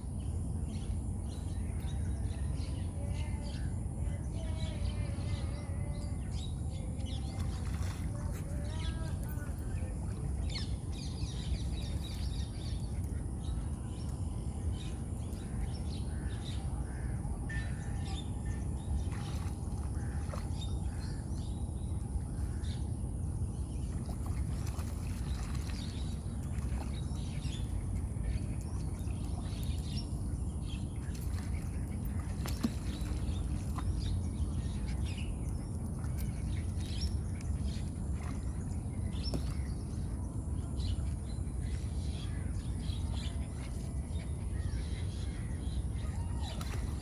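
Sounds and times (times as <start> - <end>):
steady low rumble: 0.0 - 47.0.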